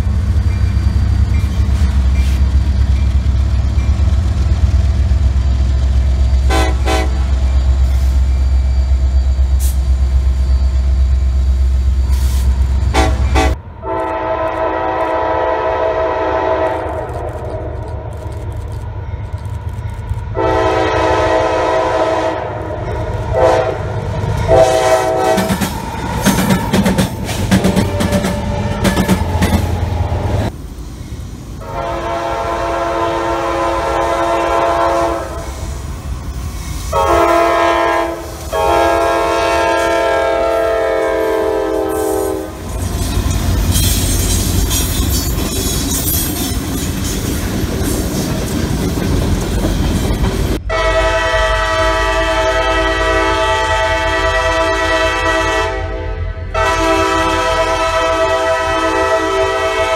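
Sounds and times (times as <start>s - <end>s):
train wheels clacking on rails: 0.0s - 11.1s, 22.6s - 31.3s, 42.6s - 50.6s
locomotive air horn: 6.4s - 8.3s, 12.1s - 17.8s, 20.4s - 25.6s, 31.6s - 35.8s, 36.7s - 42.7s, 50.6s - 59.9s.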